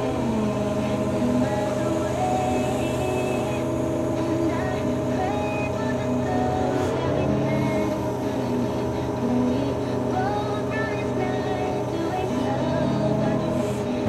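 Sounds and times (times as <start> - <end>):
heavy vehicle engine idling: 0.0 - 14.0.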